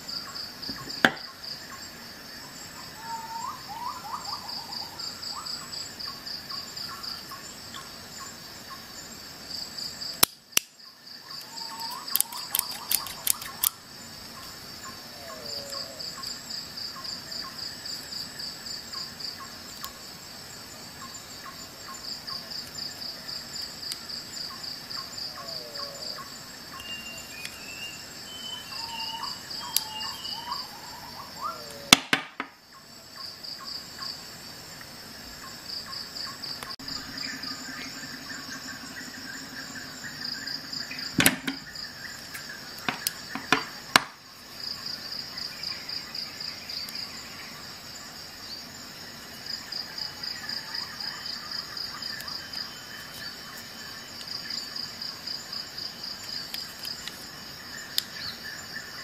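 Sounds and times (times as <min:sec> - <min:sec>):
high pulsing insect trill: 0:00.0 - 0:59.0
shears clicking open and shut: 0:11.8 - 0:13.8.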